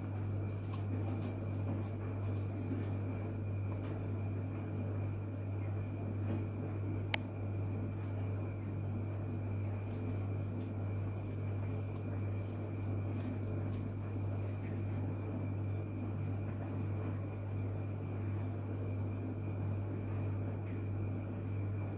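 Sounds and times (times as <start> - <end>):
knife scraping a leaf: 0.2 - 3.0, 10.6 - 14.1.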